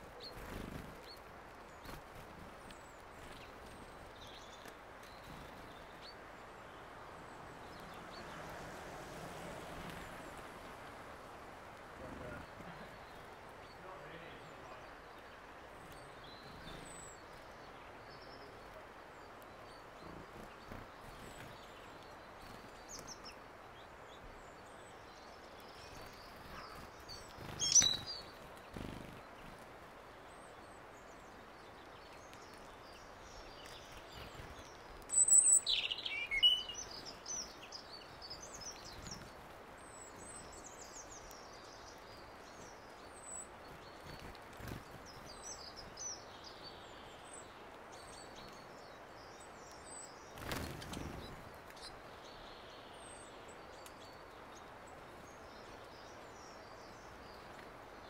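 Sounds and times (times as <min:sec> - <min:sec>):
songbirds chirping: 0:00.0 - 0:58.0
outdoor hiss: 0:05.2 - 0:14.8.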